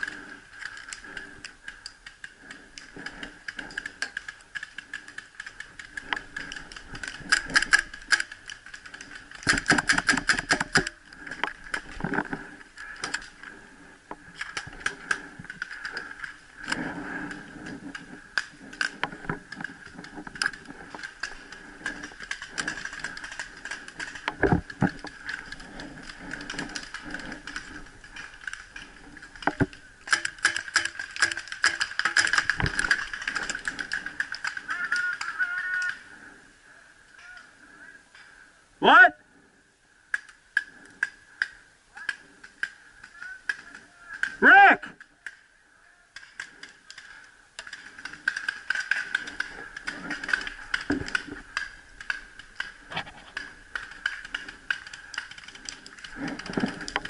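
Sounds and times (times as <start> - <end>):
paintball markers firing: 2.9 - 11.4, 29.3 - 35.9, 46.1 - 57.0.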